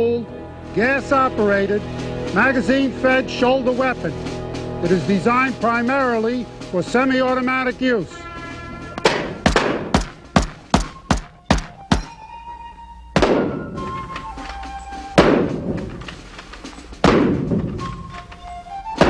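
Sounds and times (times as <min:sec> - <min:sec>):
music with sustained tones: 0:00.0 - 0:19.0
rifle shots echoing: 0:09.0 - 0:12.2, 0:13.2 - 0:14.1, 0:15.2 - 0:16.0, 0:17.0 - 0:17.8.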